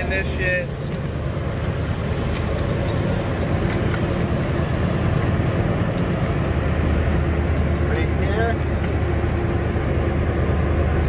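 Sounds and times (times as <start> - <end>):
boat engine drone: 0.0 - 11.0
metallic clinks of chain: 0.6 - 8.0.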